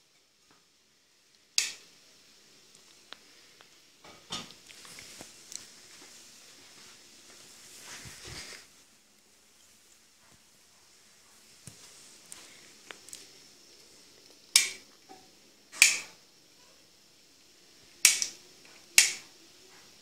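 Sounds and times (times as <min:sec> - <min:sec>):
light switch clicking: 0:01.6 - 0:01.8, 0:14.5 - 0:14.8, 0:15.8 - 0:16.1, 0:18.0 - 0:18.4, 0:19.0 - 0:19.2.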